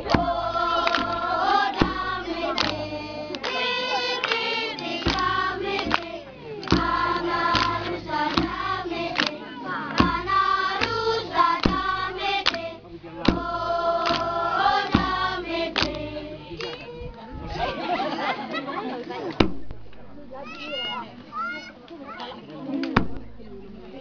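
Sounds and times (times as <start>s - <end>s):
sharp struck beats: 0.0s - 16.5s
women singing together: 0.0s - 18.4s.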